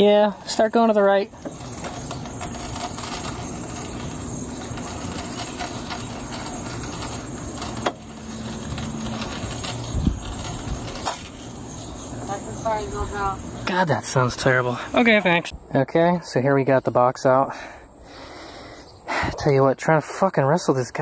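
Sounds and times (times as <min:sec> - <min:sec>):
low hum: 0:01.2 - 0:15.7.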